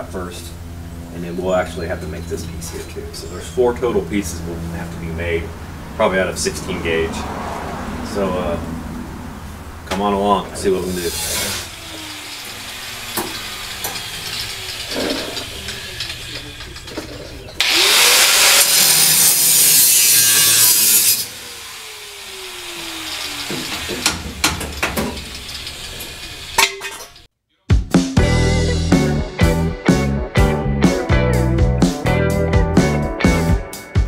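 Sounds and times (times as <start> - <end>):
grinder cutting sheet steel: 10.6 - 27.3
sharp metal knocks: 23.5 - 25.4.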